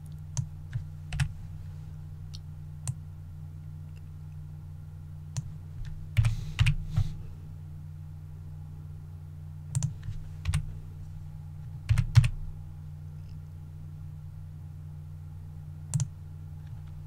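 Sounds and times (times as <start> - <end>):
steady low hum: 0.0 - 17.0
keyboard and mouse clicking: 9.7 - 10.6, 15.9 - 16.1.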